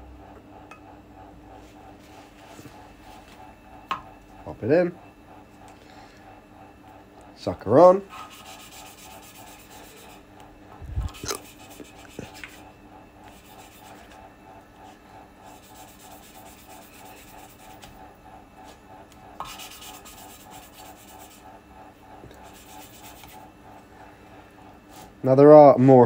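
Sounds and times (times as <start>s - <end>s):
valve grinding against seat: 8.3s - 14.3s.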